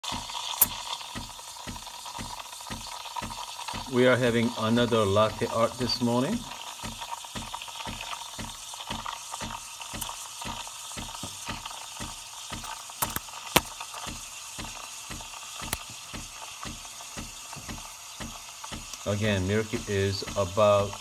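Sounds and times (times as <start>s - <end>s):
sharp ticks: 0.0s - 20.7s
steam wand hissing in milk: 0.0s - 21.0s
low regular pulsing: 0.2s - 12.7s.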